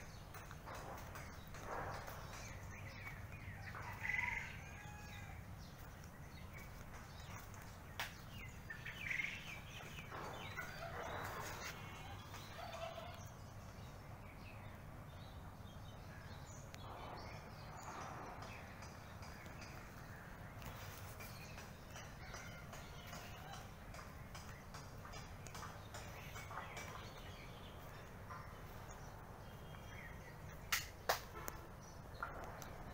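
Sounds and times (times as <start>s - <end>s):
steady low rumble: 13.4s - 20.7s
sharp click: 30.7s - 31.3s.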